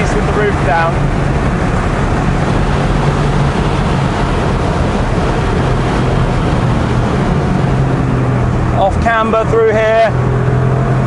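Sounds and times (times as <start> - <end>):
wind rushing: 0.0 - 8.8
car engine running hard: 0.0 - 11.0.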